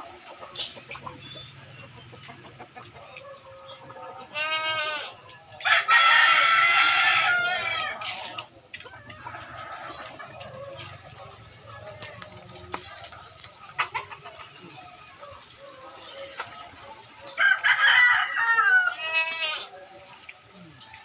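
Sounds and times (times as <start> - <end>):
rooster crowing: 3.4 - 8.2, 17.3 - 19.5.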